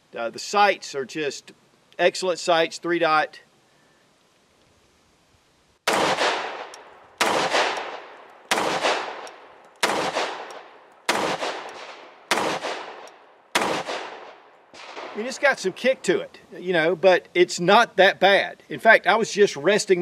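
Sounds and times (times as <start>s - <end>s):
pistol shots: 5.8s - 15.5s.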